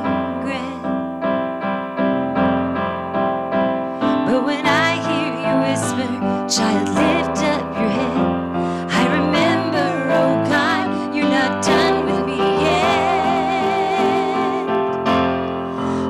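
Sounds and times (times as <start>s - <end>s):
woman singing with vibrato: 0.0s - 1.0s, 4.1s - 14.9s
piano accompaniment: 0.0s - 16.0s.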